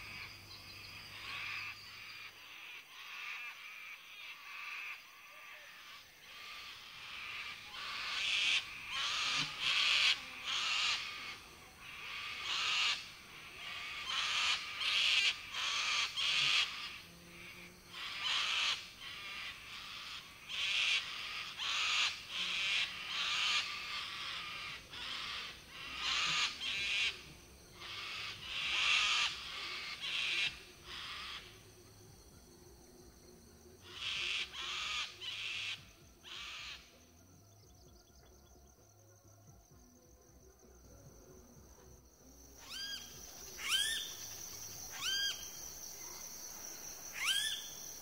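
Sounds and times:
screeching bird calls: 0:17.9 - 0:31.6, 0:33.8 - 0:36.9, 0:42.6 - 0:46.2, 0:47.0 - 0:48.0.

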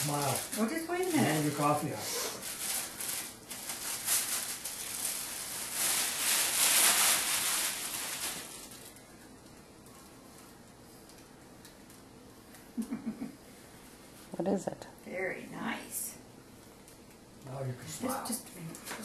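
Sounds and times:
wrapping paper rustling: 0:00.0 - 0:10.6.

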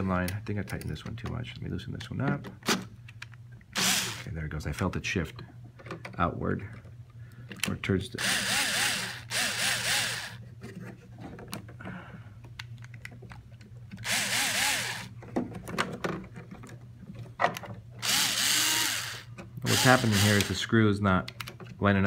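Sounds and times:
power screwdriver whirring: 0:03.8 - 0:04.2, 0:08.2 - 0:10.4, 0:14.0 - 0:15.1, 0:18.0 - 0:20.6.

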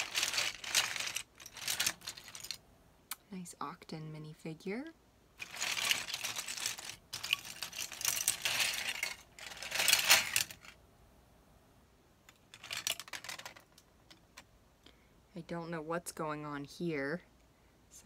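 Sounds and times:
plastic bricks clattering: 0:00.0 - 0:02.6, 0:05.4 - 0:10.8, 0:12.3 - 0:13.9
plastic bricks clicking: 0:05.4 - 0:10.7.

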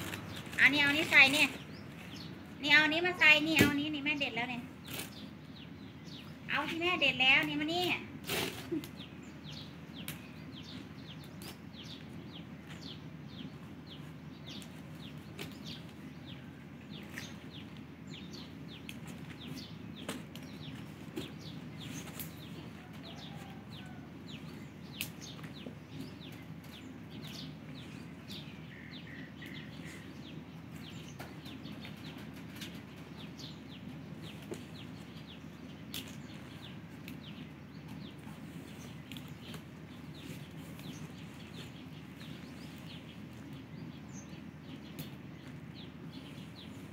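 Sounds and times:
birds chirping: 0:00.0 - 0:46.9
low background hum: 0:00.0 - 0:46.9.

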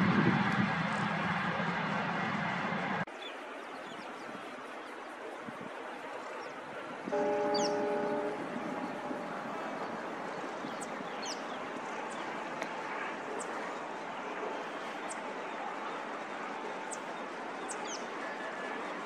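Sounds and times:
steady outdoor hiss: 0:00.0 - 0:19.0
birds chirping: 0:06.4 - 0:15.2.

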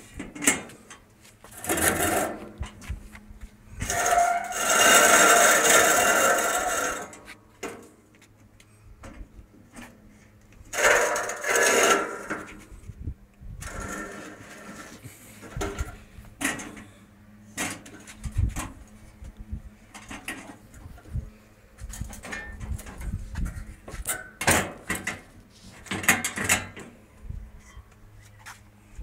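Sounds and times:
metal rod scraping barbecue grill: 0:00.0 - 0:02.9, 0:03.8 - 0:07.9, 0:09.7 - 0:12.9, 0:13.6 - 0:17.0.

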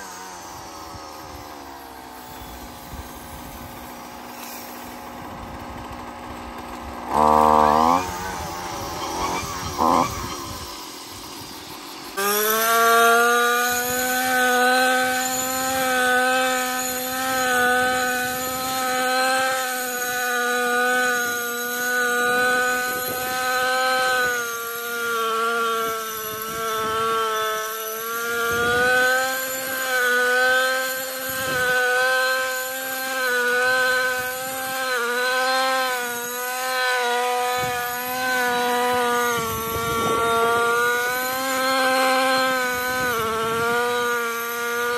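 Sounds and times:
brushcutter engine running: 0:00.0 - 0:44.9.

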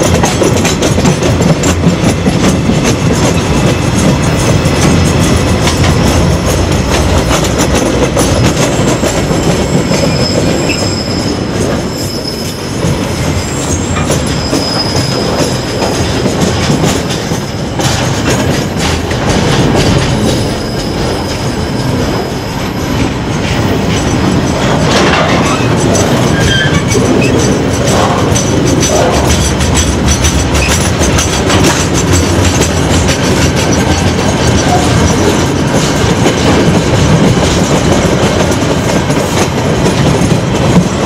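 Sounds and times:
train wheels rumbling on rail: 0:00.0 - 0:41.0
faint high wheel squeal: 0:09.7 - 0:15.3.

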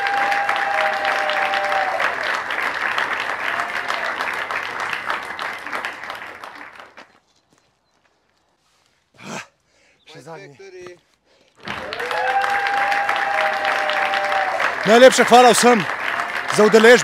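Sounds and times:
crowd cheering: 0:00.0 - 0:07.0, 0:11.6 - 0:17.0
crowd clapping: 0:00.0 - 0:07.2, 0:11.6 - 0:17.0.

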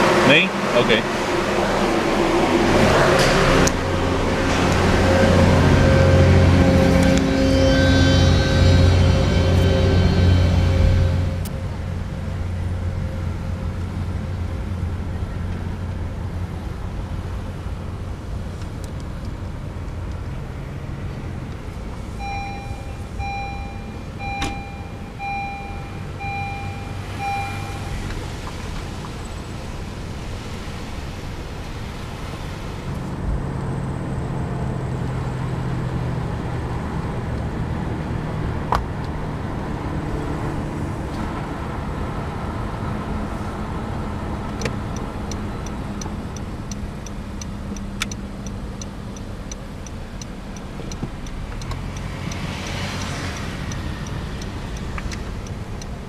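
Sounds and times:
car engine and road noise: 0:00.0 - 0:56.0
turn signal ticking: 0:21.5 - 0:29.3, 0:44.2 - 0:56.0
repeating beep: 0:22.2 - 0:28.0.

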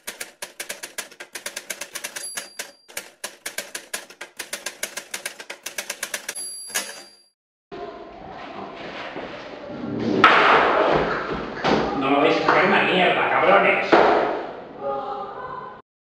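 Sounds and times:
typewriter keys clacking: 0:00.0 - 0:07.2
typewriter bell ding: 0:01.4 - 0:03.2, 0:05.6 - 0:07.4.

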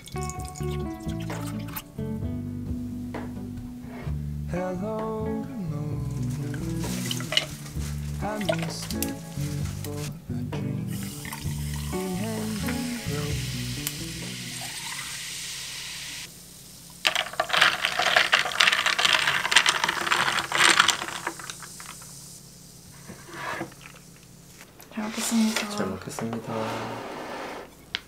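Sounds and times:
carbonated drink fizzing over ice: 0:00.0 - 0:01.8, 0:06.8 - 0:08.9, 0:11.0 - 0:16.2, 0:17.0 - 0:22.2
background music: 0:00.0 - 0:14.9.

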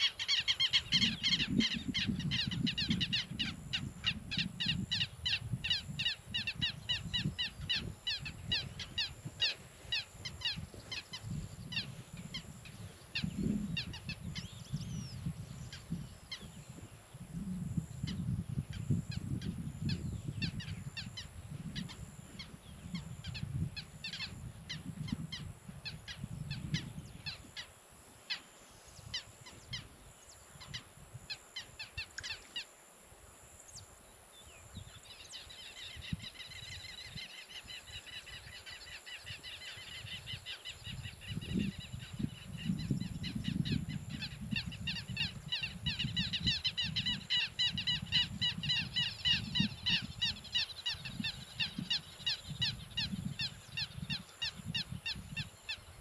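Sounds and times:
birds calling harshly: 0:00.0 - 0:16.6, 0:34.9 - 0:56.0.

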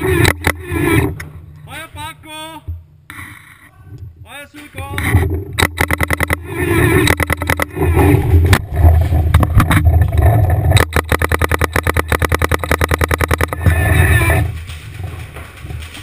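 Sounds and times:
rough rumbling noise: 0:00.0 - 0:16.0
paintball marker rapid firing: 0:05.6 - 0:06.4, 0:10.8 - 0:13.7.

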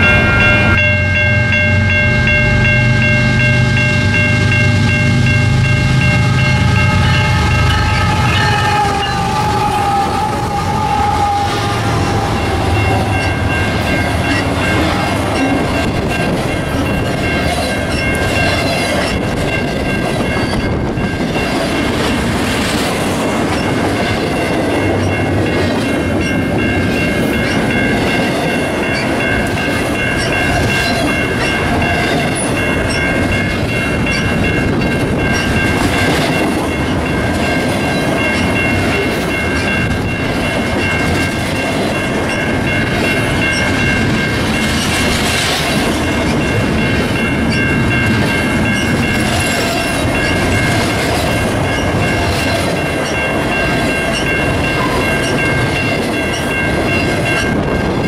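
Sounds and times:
high ringing tone: 0:00.0 - 0:21.4
freight train clattering past: 0:00.0 - 0:58.0.

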